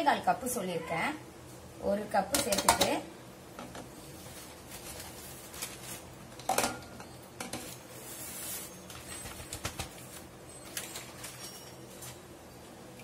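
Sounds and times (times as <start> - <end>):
kitchen containers and utensils clinking: 2.3 - 3.0, 6.4 - 9.5.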